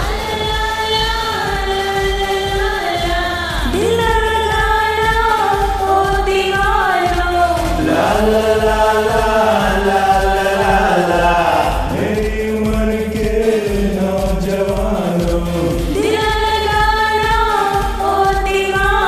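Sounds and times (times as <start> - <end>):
backing track with steady beat: 0.0 - 19.0
women singing: 0.0 - 19.0
men singing: 7.6 - 16.2.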